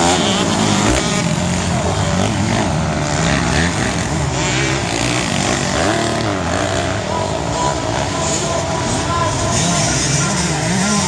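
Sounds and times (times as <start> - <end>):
motocross bike engines revving: 0.0 - 11.0.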